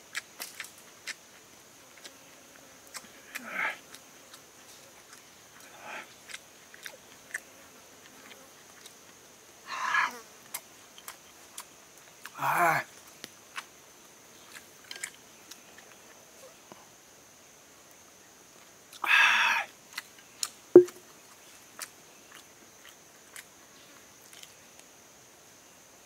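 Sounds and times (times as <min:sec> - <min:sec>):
chewing clicks: 0:00.1 - 0:01.2, 0:01.9 - 0:02.2, 0:02.8 - 0:04.4, 0:05.0 - 0:07.4, 0:08.0 - 0:09.1, 0:10.5 - 0:12.3, 0:14.5 - 0:16.0, 0:19.9 - 0:23.5
person exclaiming: 0:19.0 - 0:19.7
sharp knock with low ring: 0:20.8 - 0:21.0.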